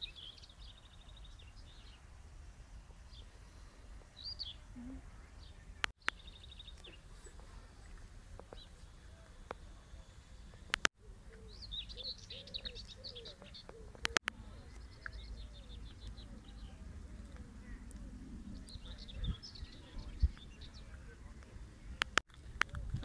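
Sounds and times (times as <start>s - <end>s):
small birds trilling and chirping: 0.0s - 23.0s
sharp clicks: 10.6s - 10.9s, 13.6s - 15.2s, 21.4s - 22.8s
low wind rumble: 14.3s - 23.0s.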